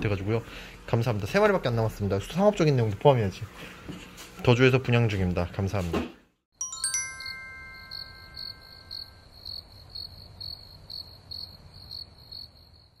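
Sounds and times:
chime ringing: 6.6 - 9.3
cricket chirping: 7.9 - 13.0.

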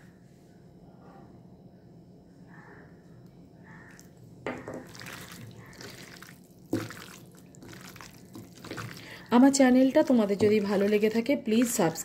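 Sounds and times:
wet squelching of meat in marinade: 4.8 - 12.0.

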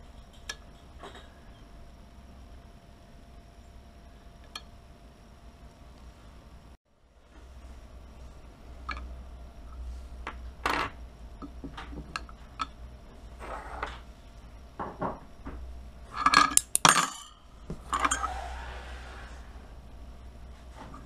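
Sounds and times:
metal plates clinking and scraping: 16.1 - 19.5.

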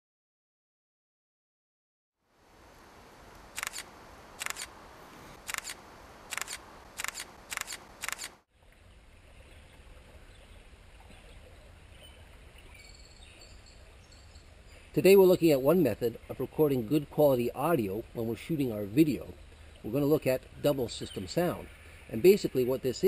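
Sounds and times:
camera shutter double clicks: 3.5 - 4.7, 5.4 - 8.4.

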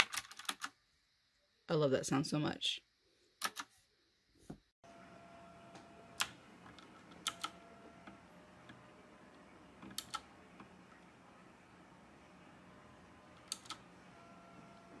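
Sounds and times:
mechanical keyboard clicking: 6.2 - 7.6, 9.8 - 10.3, 13.4 - 13.8.

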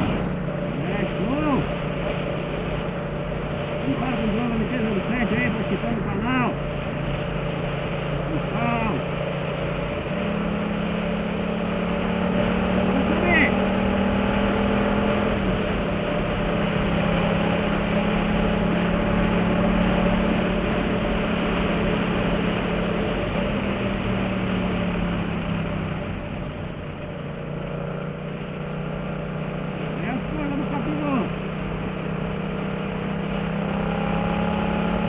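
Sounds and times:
wind rushing over microphone: 0.0 - 26.8
motorcycle engine running: 0.0 - 35.0.

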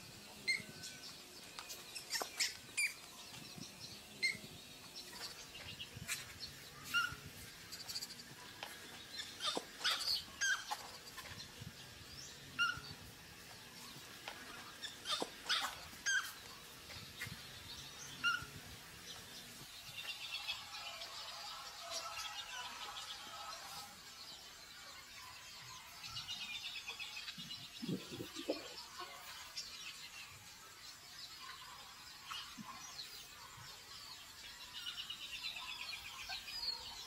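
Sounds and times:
baby monkey whimpering squeaks: 9.2 - 10.8, 15.0 - 16.4.

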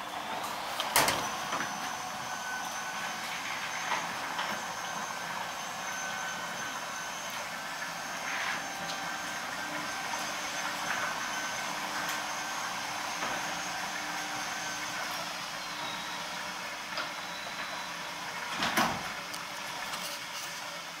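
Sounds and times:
garage door running: 0.0 - 20.1
garage door clatter and thump: 18.5 - 19.2.

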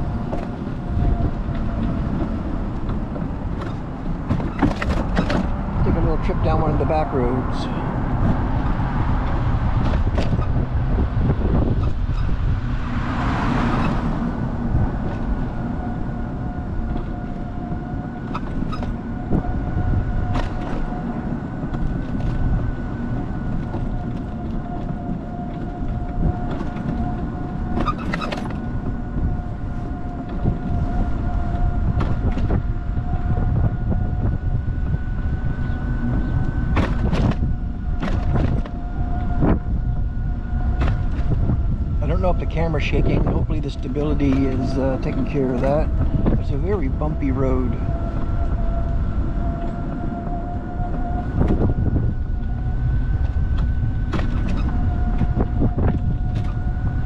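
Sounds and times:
knocks and rattles over bumps: 0.0 - 6.6, 8.0 - 12.6, 13.6 - 47.0
car road and engine rumble: 0.0 - 57.0
steady whine: 0.0 - 57.0.

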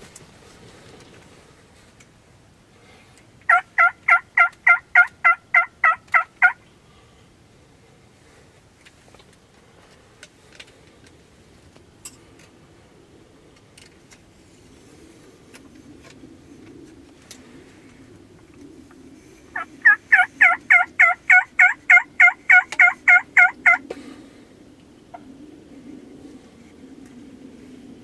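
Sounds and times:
wild turkey yelping: 3.4 - 6.6, 19.5 - 23.8.

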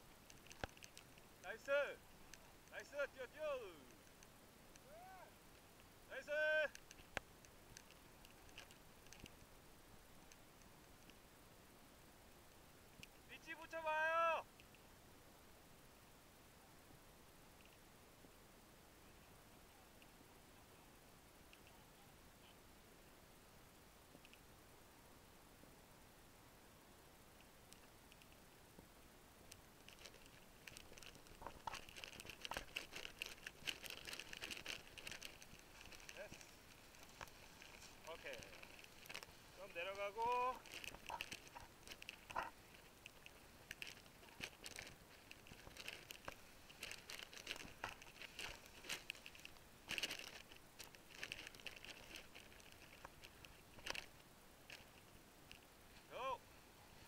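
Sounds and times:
nylon fabric crinkling and rustling: 0.0 - 4.0, 6.4 - 9.4, 29.8 - 56.1.

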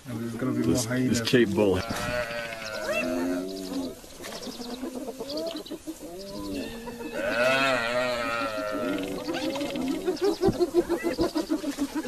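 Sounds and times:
hyena calls: 1.8 - 4.5.

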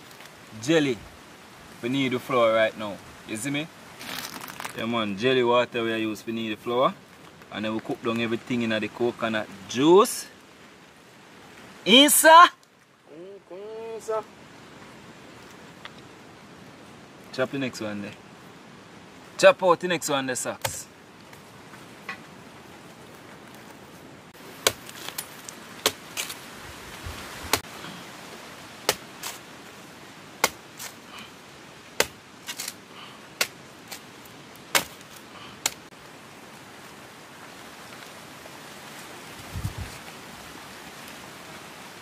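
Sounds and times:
blade chopping coconut: 24.6 - 25.2, 30.4 - 31.0, 34.7 - 35.0.

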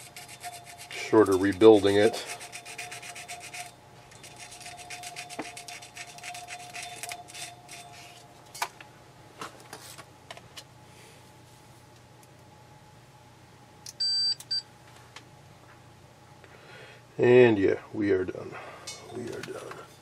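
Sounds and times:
sandpaper scratching on wire: 0.0 - 8.2.

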